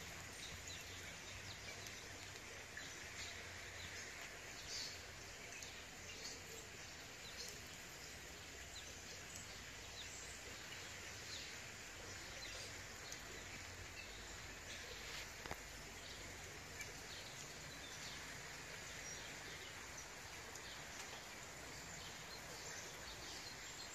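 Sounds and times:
steady outdoor hiss: 0:00.0 - 0:23.9.

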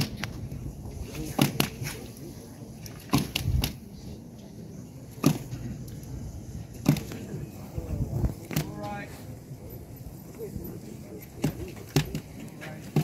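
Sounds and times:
wind rumbling on microphone: 0:05.7 - 0:08.6.

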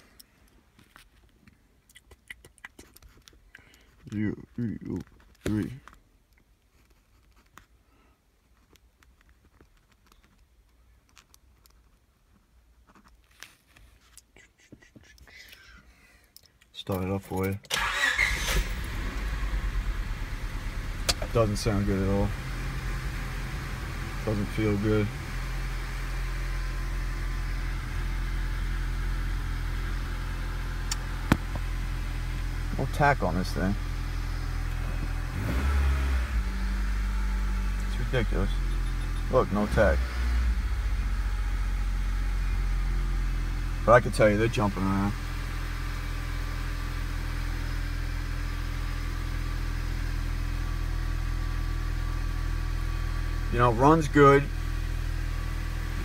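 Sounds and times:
car engine idling: 0:17.8 - 0:56.0.

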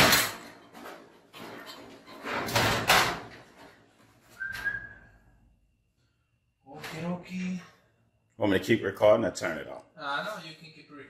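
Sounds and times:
metal garage door scraping rattle: 0:00.0 - 0:03.8.

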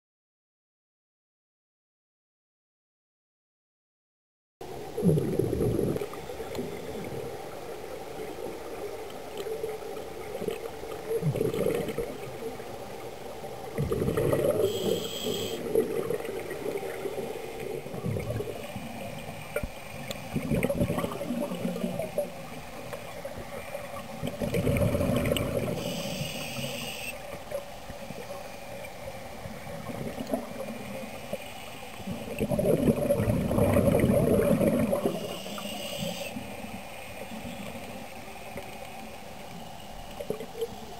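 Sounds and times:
exhaled bubbles gurgling: 0:04.7 - 0:31.4, 0:32.0 - 0:38.7
regulator inhalation hiss: 0:14.6 - 0:15.6, 0:25.7 - 0:27.2, 0:35.2 - 0:36.4.

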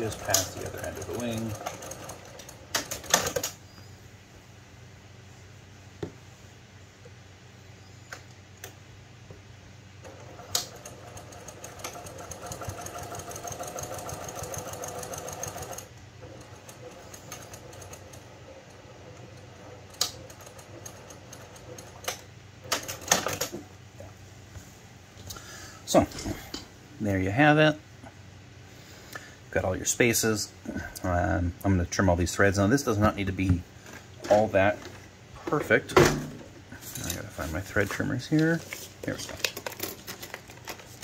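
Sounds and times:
sewing machine stitching: 0:00.0 - 0:03.5, 0:10.1 - 0:18.3.

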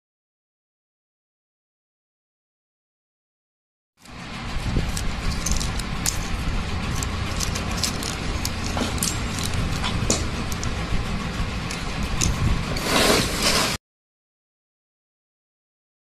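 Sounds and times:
plastic connectors clicking and rattling: 0:04.0 - 0:12.5
steady low rumble: 0:04.0 - 0:12.9.

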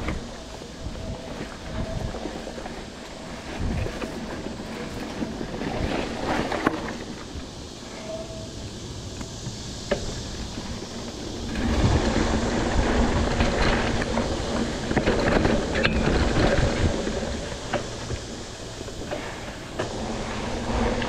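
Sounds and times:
bike rattling: 0:00.0 - 0:21.0
bike tyres rolling on dirt: 0:00.0 - 0:21.0
tyres on concrete pavers: 0:00.0 - 0:21.0.

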